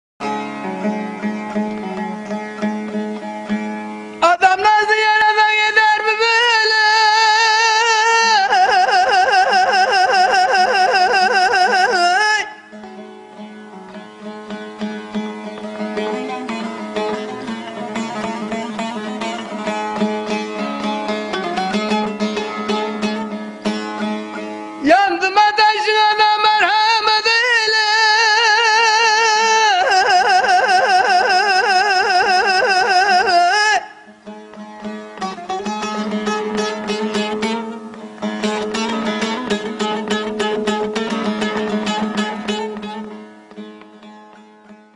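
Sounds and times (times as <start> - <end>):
plucked lute: 0.2 - 44.9
man singing with vibrato trill: 4.2 - 13.0, 24.8 - 34.3.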